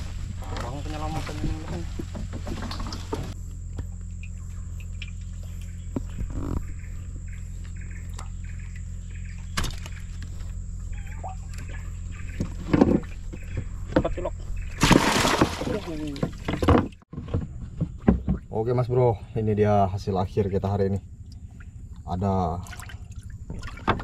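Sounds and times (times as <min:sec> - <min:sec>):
steady low hum: 0:00.0 - 0:24.0
knocks in wooden boat: 0:14.8 - 0:18.5.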